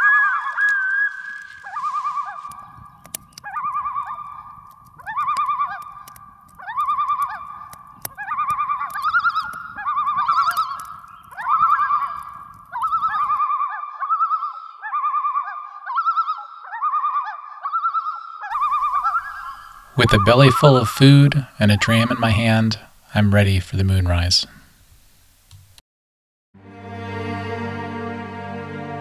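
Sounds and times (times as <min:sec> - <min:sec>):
sharp crackles: 0:00.0 - 0:13.4, 0:18.5 - 0:25.6
loons tremolo calls: 0:00.0 - 0:23.2.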